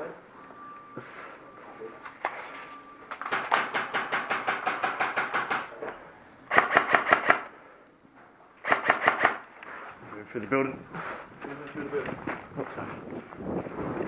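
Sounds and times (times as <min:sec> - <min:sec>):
airsoft rifle firing bursts: 0:06.5 - 0:07.5, 0:08.6 - 0:09.4.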